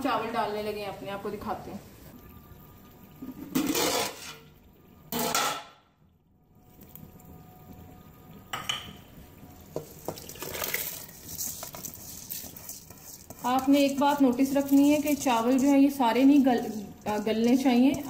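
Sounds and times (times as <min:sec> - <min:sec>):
metal pots clattering: 0:03.2 - 0:04.5, 0:05.1 - 0:05.8, 0:09.7 - 0:18.0
spices splashing into water: 0:09.6 - 0:18.0.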